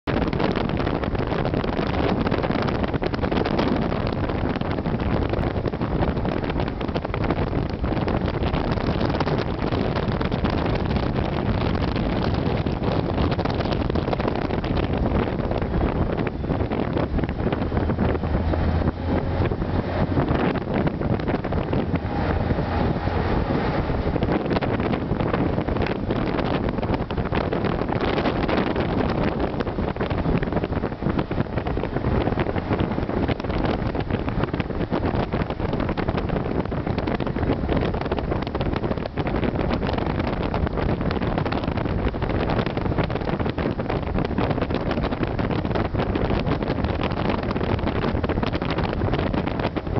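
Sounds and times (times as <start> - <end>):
road and engine noise: 0.0 - 49.9
wind rushing past microphone: 0.0 - 49.9
low hum: 8.5 - 27.4.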